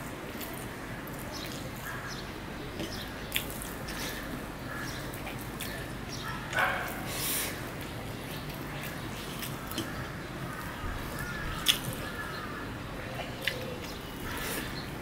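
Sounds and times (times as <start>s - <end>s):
wet squishing of rice: 6.9s - 15.0s.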